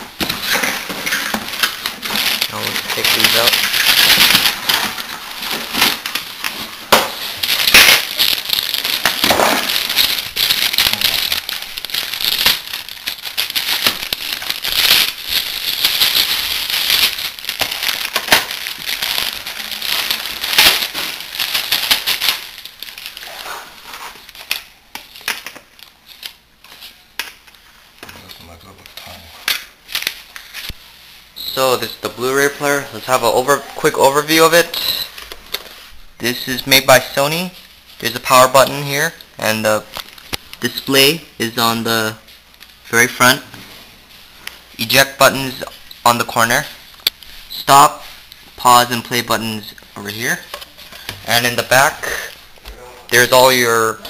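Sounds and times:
plastic bags crinkling: 0.1 - 27.5, 36.5 - 42.9.

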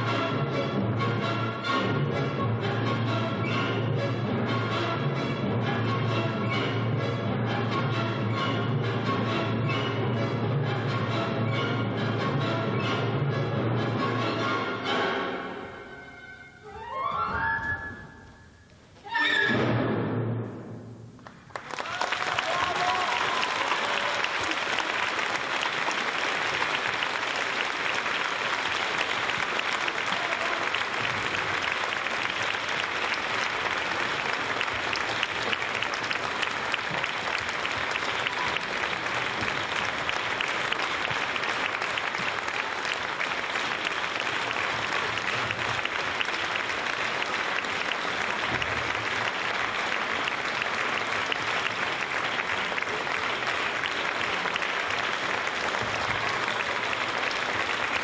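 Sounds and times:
audience applauding: 21.2 - 58.0.

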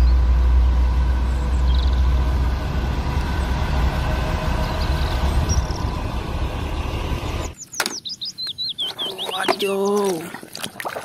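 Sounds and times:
diesel engine idling: 0.0 - 7.6.

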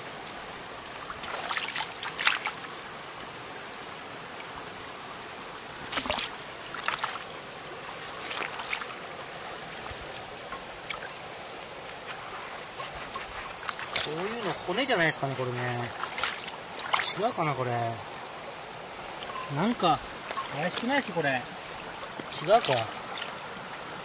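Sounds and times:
stream water running: 0.0 - 24.0
short knocks and scrapes: 12.0 - 14.1.

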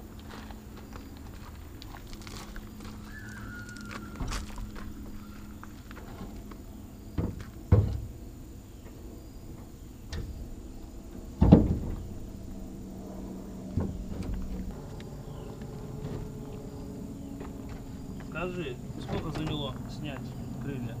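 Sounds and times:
low steady hum: 0.0 - 21.0
knocks and clunks: 4.2 - 20.7.

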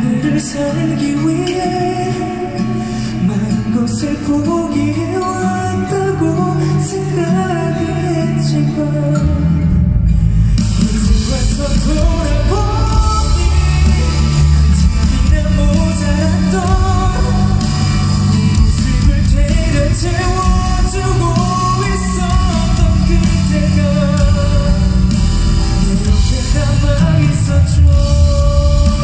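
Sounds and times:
man singing pop ballad: 0.0 - 29.0
heavy bass accompaniment: 8.9 - 29.0.

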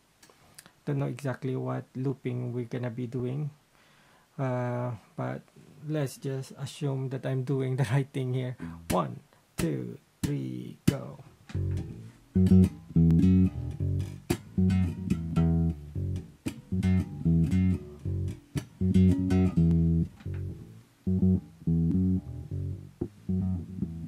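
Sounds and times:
electric bass riff: 8.6 - 24.0.

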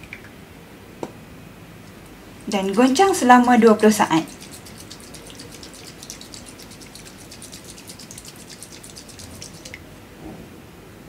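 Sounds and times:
liquid sloshing in shaken vial: 2.4 - 9.9.

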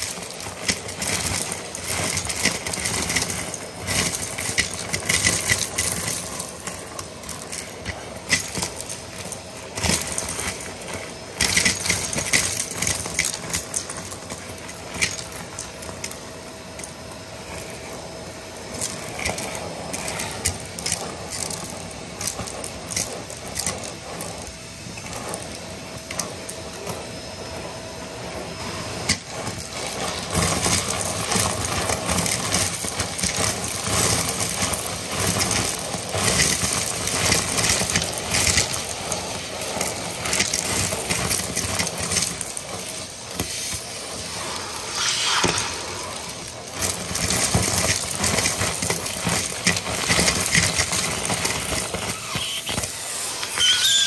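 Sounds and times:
debris rattling up vacuum tube: 0.0 - 26.9, 29.0 - 54.0
vacuum cleaner whine: 0.0 - 54.0.

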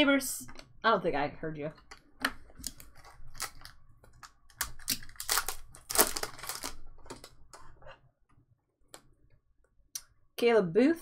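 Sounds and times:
foil wrapper crinkling and tearing: 2.6 - 3.8, 4.6 - 7.4.

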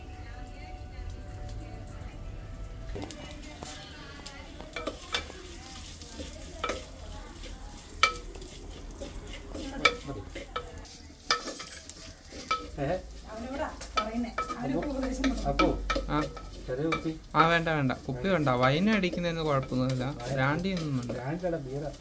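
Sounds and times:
garlic sizzling in oil: 0.0 - 22.0
wooden spatula knocking clay pot: 6.2 - 12.8, 13.7 - 17.7.

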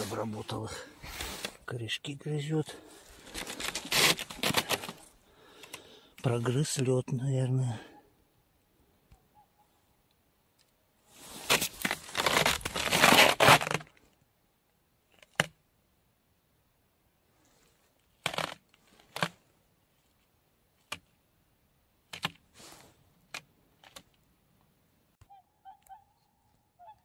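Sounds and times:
footsteps crunching in snow: 11.1 - 13.6
swans honking: 25.2 - 27.0.

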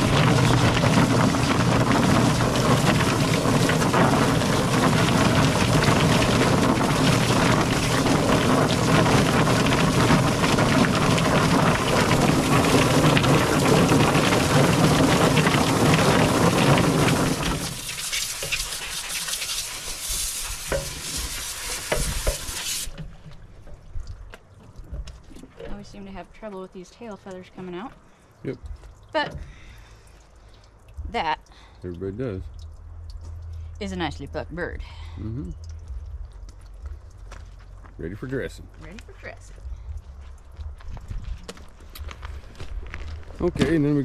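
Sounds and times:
hose water spraying: 0.0 - 23.8, 41.6 - 44.0
poultry plucker churning: 0.0 - 26.6.

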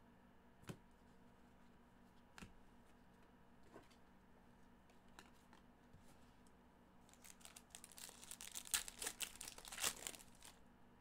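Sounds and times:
plastic foil wrapper crinkling: 7.1 - 10.6.

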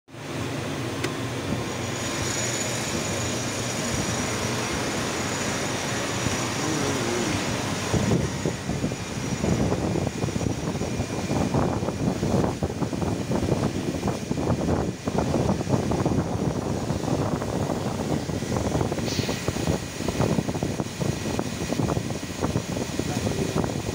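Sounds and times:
lathe machine running: 0.2 - 19.0
coolant spraying: 0.2 - 23.9.

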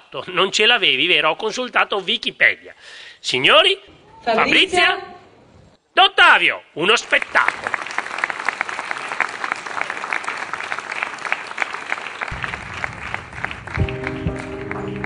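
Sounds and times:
audience applauding: 7.0 - 15.0
music: 13.6 - 15.0
held musical notes: 13.7 - 15.0.

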